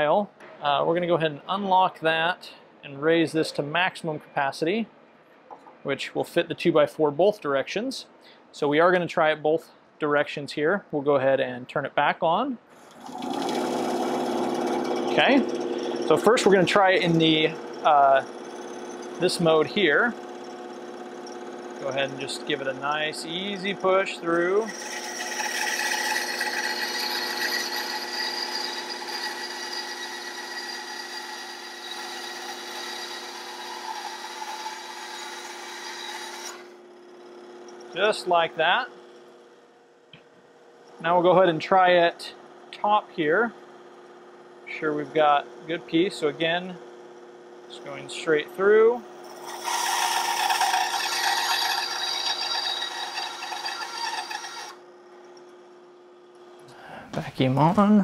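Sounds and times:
band saw motor hum: 0:12.7 - 0:56.7
saw blade rasping through wood: 0:12.8 - 0:36.8, 0:48.6 - 0:54.8.

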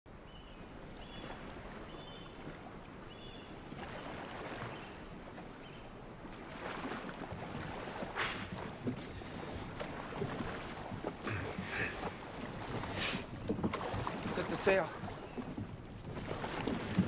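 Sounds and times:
water: 0:00.1 - 0:17.0
wind: 0:00.1 - 0:17.0.

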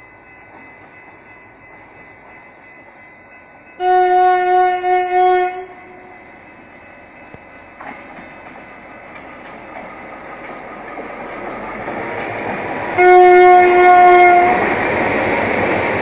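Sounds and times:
faint train noise: 0:00.0 - 0:16.0
locomotive air horn blast: 0:03.8 - 0:06.1, 0:13.0 - 0:14.6.

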